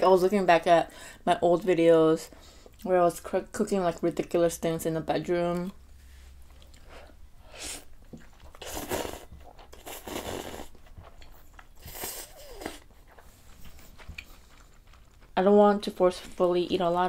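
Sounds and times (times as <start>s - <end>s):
noodles being slurped: 7.7s - 15.3s
wet chewing: 8.0s - 16.4s.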